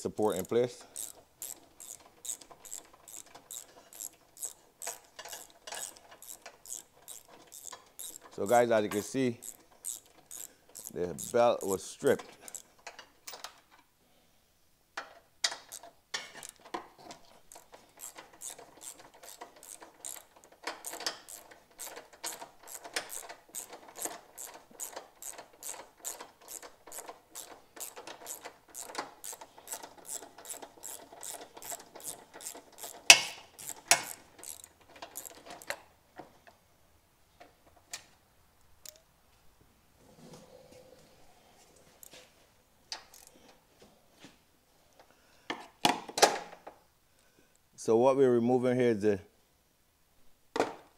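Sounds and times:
ratchet wrench clicking: 0.0s - 13.0s, 15.4s - 16.6s, 17.4s - 35.8s, 43.0s - 43.4s.

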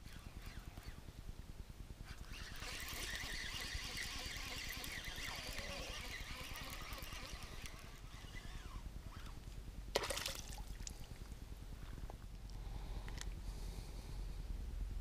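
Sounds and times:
fishing reel whirring: 0.0s - 1.1s, 2.0s - 9.4s.

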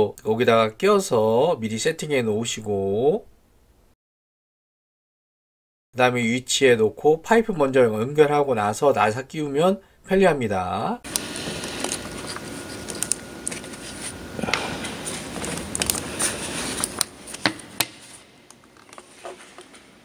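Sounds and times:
clicks and knocks of parts: 11.1s - 13.8s, 15.3s - 19.9s
gloved hands rustling: 11.1s - 20.0s.

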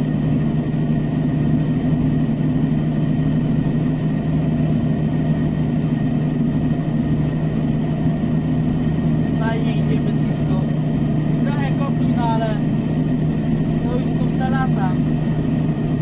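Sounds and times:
tractor diesel engine drone: 0.0s - 16.0s.

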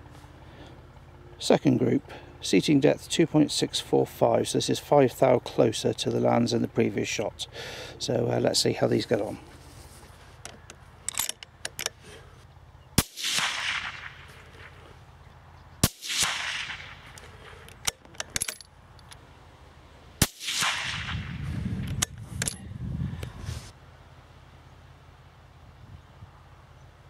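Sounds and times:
suppressed rifle shots: 13.0s - 14.9s, 15.8s - 17.8s, 20.2s - 22.5s.

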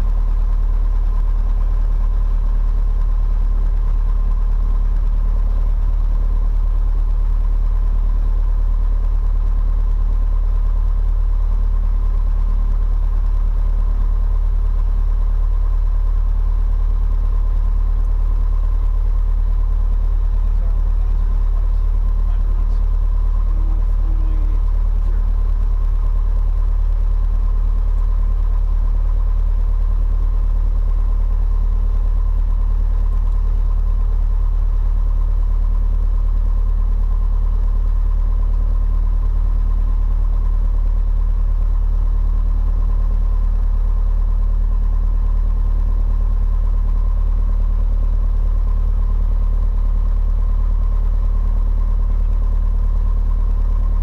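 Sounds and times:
aircraft piston engine idling: 0.0s - 40.4s.

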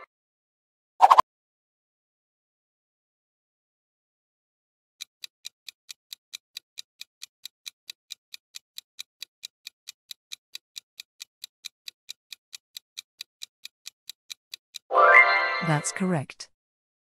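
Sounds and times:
rapid clock ticking: 5.0s - 14.9s.

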